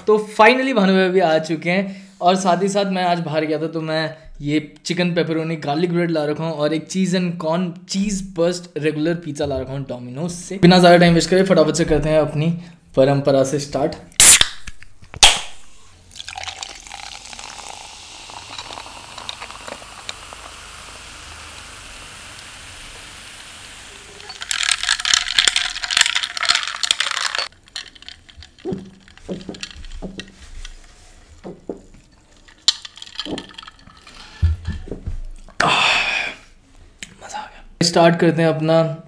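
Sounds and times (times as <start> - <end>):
can cracked open: 14.2 - 15.6, 18.4 - 20.5
cola fizzing over ice: 16.0 - 30.6, 31.3 - 34.4
ice knocking in glass: 24.2 - 30.3, 32.6 - 33.9.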